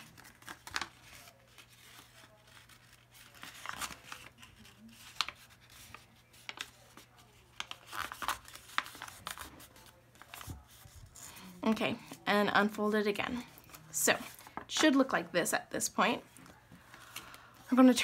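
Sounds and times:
paper crinkling and crackling: 0.0s - 12.2s, 13.3s - 14.8s.

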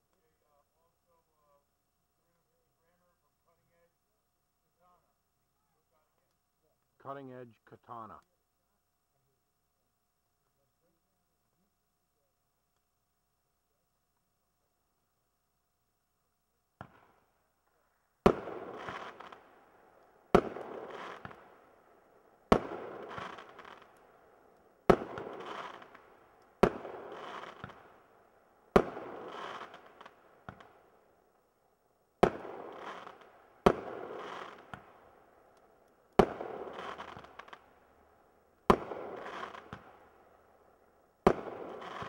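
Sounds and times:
loud firework bangs: 18.3s - 19.4s, 26.6s - 27.9s, 28.8s - 29.9s, 32.2s - 34.9s, 36.2s - 37.6s, 38.7s - 40.0s, 41.2s - 42.0s.

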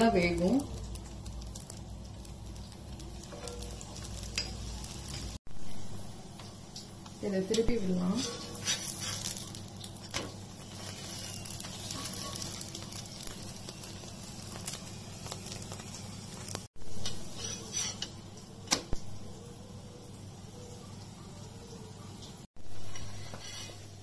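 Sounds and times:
flatbread sizzling on a pan: 0.0s - 19.3s, 20.6s - 24.0s
metal spatula scraping a pan: 8.0s - 13.0s, 17.0s - 18.1s, 22.7s - 24.0s.

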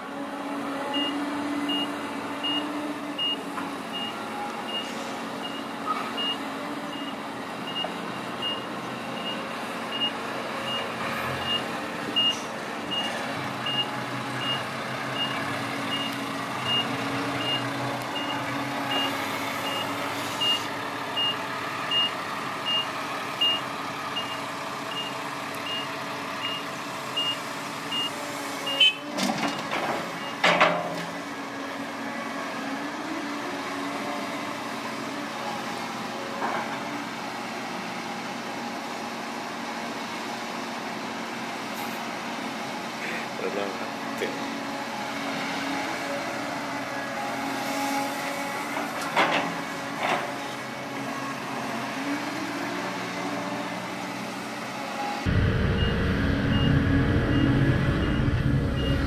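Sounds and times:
reversing alarm beeping: 0.9s - 10.8s, 11.4s - 17.6s, 18.2s - 23.6s, 24.2s - 29.0s, 55.3s - 59.0s
diesel engine running: 48.2s - 59.0s.

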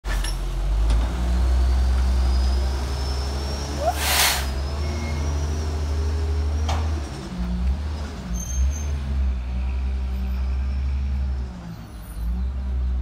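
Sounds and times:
air brake hiss: 3.8s - 4.6s.

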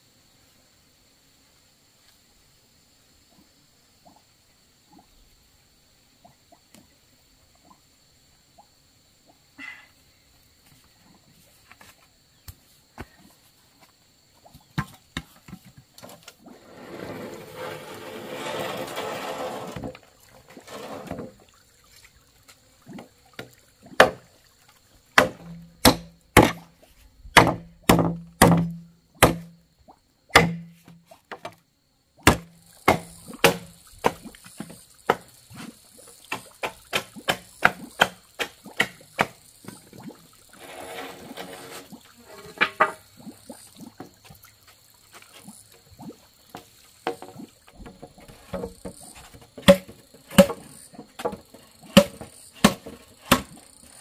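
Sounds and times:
hand scooping soil: 16.4s - 21.4s, 40.5s - 42.6s
machete chopping bamboo: 24.0s - 24.2s, 25.2s - 26.6s, 27.4s - 29.6s, 30.3s - 31.4s, 32.2s - 34.2s, 36.3s - 39.4s, 49.6s - 50.6s, 51.9s - 53.6s.

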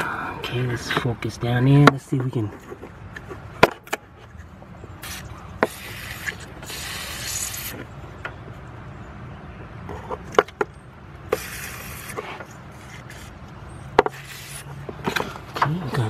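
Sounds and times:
handling clicks and knocks: 14.8s - 16.0s.

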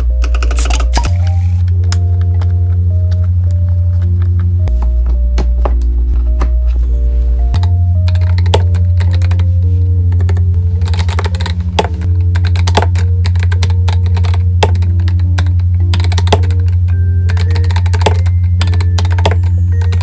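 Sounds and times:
background music with bass: 0.0s - 20.0s
mechanical keyboard typing: 7.6s - 9.5s, 10.1s - 20.0s.

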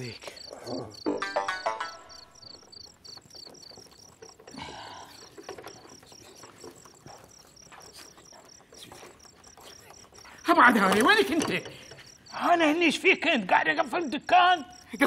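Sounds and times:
crickets chirping: 0.0s - 15.0s.

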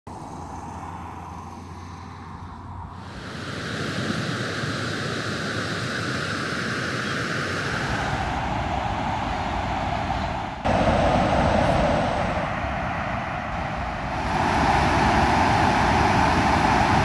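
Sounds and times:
water rushing over spillway: 14.1s - 17.0s.

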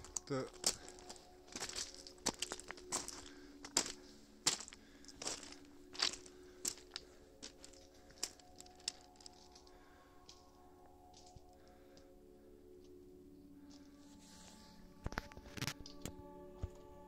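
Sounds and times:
footsteps crunching on snowy stones: 0.0s - 11.8s.

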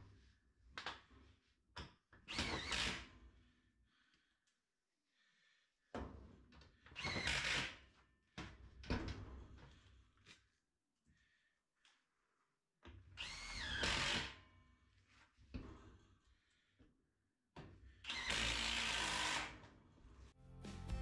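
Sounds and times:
cordless drill running: 18.1s - 19.6s.

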